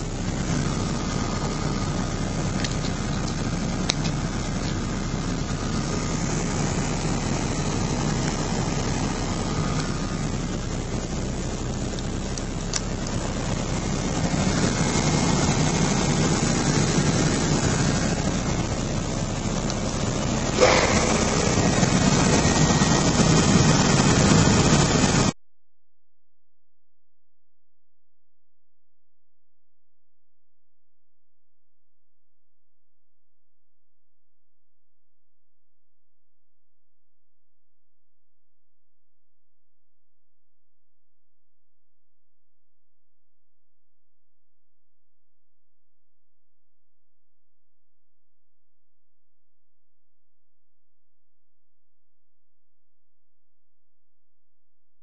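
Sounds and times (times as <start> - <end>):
heater blower fan running: 0.0 - 25.3.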